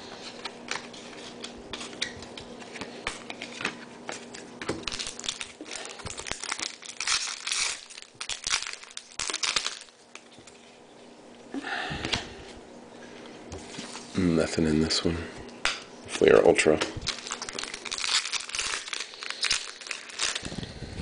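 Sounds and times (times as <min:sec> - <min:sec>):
foil wrapper crinkling and tearing: 0:00.3 - 0:10.6, 0:17.0 - 0:21.0.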